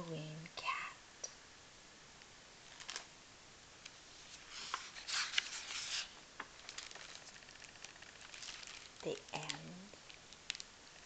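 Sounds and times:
book page turning: 0:02.7 - 0:03.1, 0:04.2 - 0:11.0.

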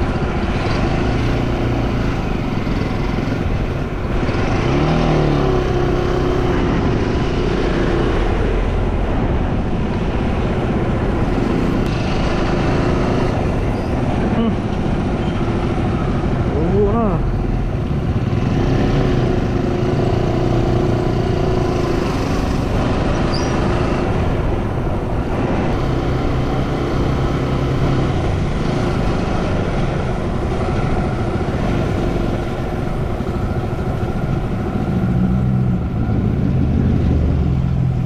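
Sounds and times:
road noise: 0:00.0 - 0:38.0.

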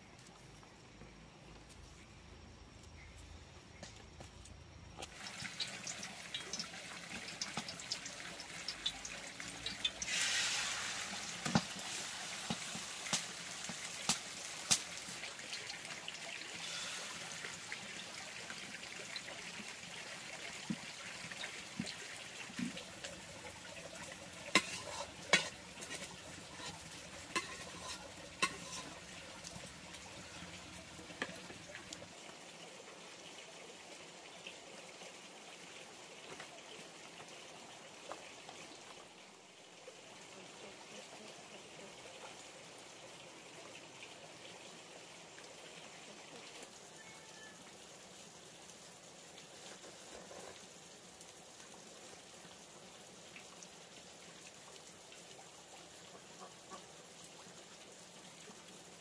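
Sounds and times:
egg sizzling in oil: 0:05.0 - 0:32.0
chopsticks tapping bowl and pan: 0:24.5 - 0:29.0.

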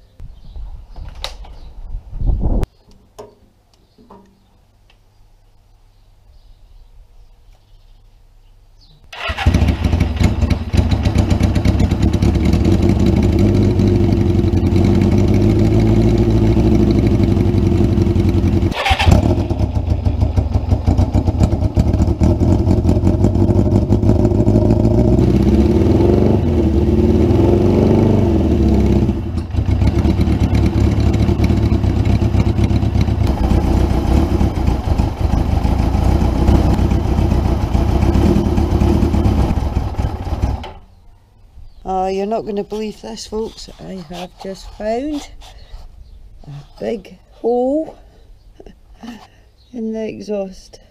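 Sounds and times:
motorcycle engine running: 0:09.2 - 0:40.8.

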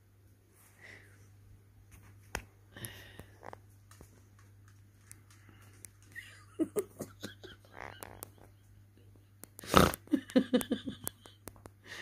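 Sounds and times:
kittens clicking and rustling: 0:02.3 - 0:08.6.

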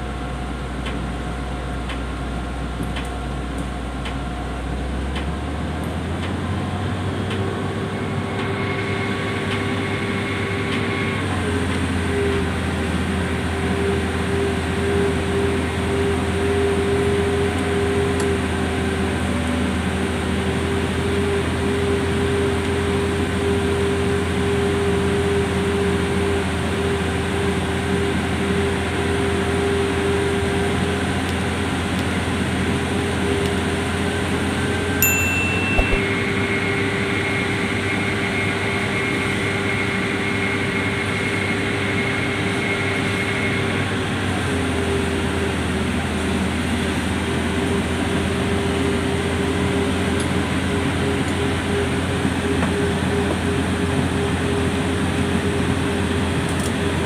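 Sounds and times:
thin high whine: 0:35.0 - 0:36.6.

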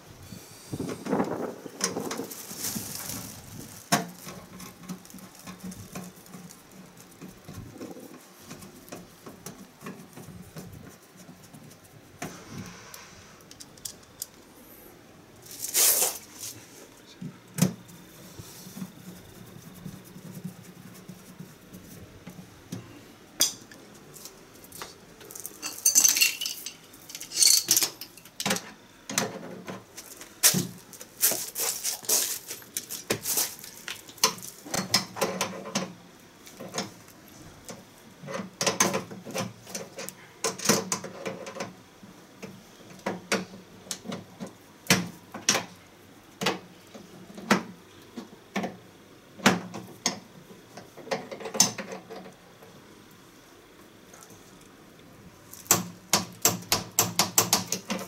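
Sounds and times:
metallic clinks of wrenches: 0:25.6 - 0:27.9.

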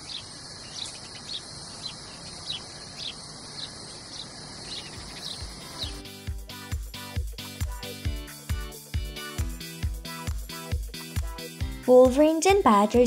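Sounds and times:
high insect hum: 0:00.0 - 0:08.4.

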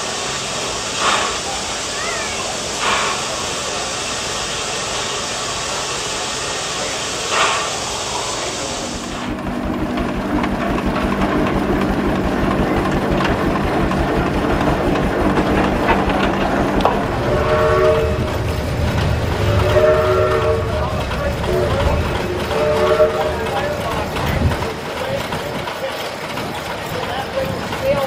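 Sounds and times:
steam hissing: 0:00.0 - 0:28.0
low machine hum: 0:11.6 - 0:24.5.

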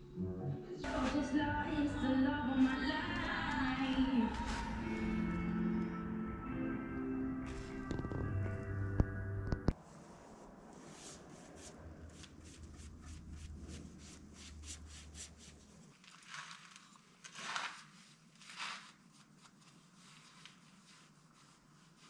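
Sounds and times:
brush stroking wood: 0:02.6 - 0:05.2, 0:10.0 - 0:22.0.

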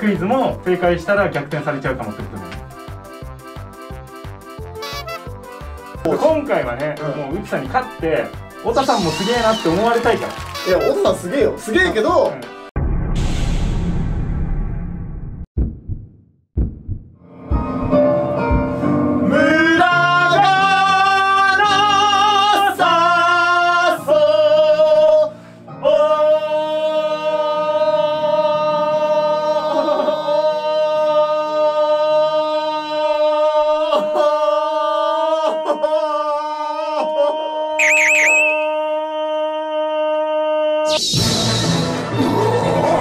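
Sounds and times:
man singing with vibrato: 0:19.2 - 0:35.1, 0:37.2 - 0:39.2.

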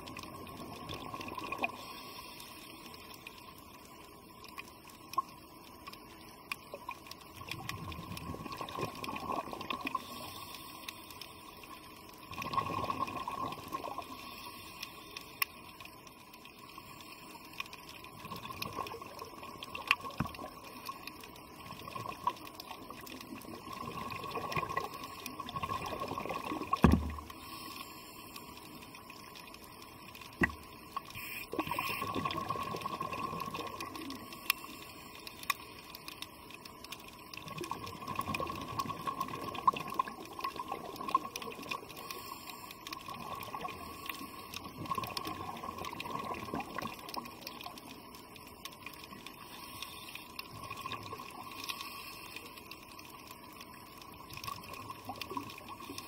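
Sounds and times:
underwater air bubbling: 0:00.0 - 0:03.4, 0:05.0 - 0:15.9, 0:16.5 - 0:56.0
faint steady hum: 0:00.0 - 0:56.0.

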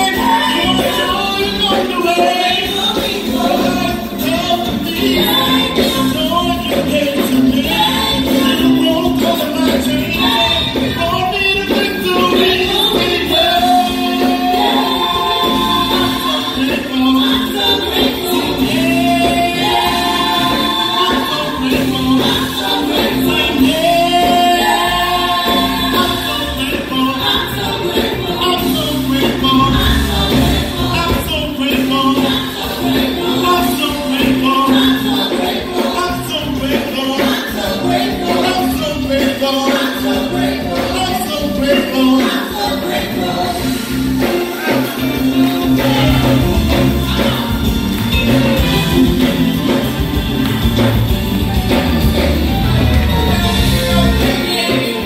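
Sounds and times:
instrumental accompaniment with beat: 0:00.0 - 0:55.0
vocal group singing gospel: 0:00.0 - 0:55.0
heavy bass line: 0:02.6 - 0:33.6, 0:43.1 - 0:55.0.

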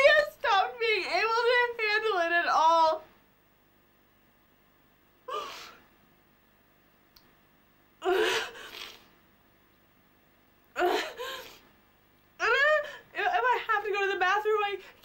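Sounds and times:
woman sobbing: 0:05.3 - 0:05.8, 0:08.0 - 0:08.8, 0:10.8 - 0:11.6, 0:12.4 - 0:13.9.

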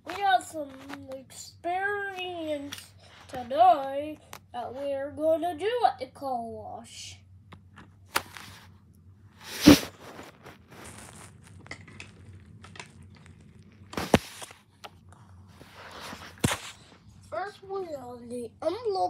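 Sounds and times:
low steady hum: 0:00.0 - 0:19.0.

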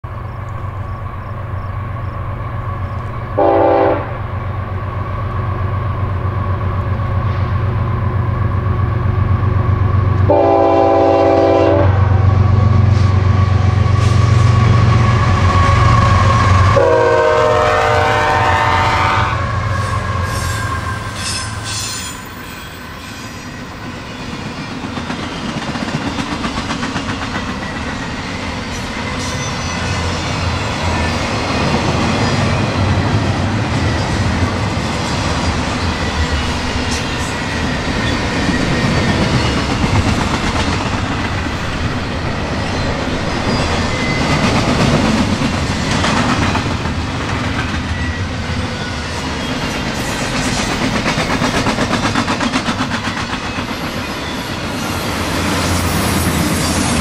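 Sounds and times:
diesel locomotive engine drone: 0:00.0 - 0:57.0
train horn blasts: 0:03.3 - 0:04.3, 0:10.2 - 0:12.7, 0:13.5 - 0:22.4
train wheels clacking over rails: 0:20.2 - 0:57.0.

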